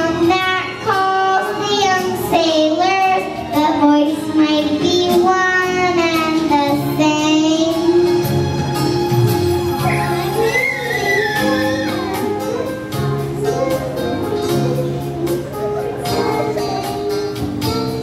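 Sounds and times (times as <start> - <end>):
girl singing into a microphone: 0.0 - 8.3, 9.8 - 18.0
background music: 0.0 - 18.0.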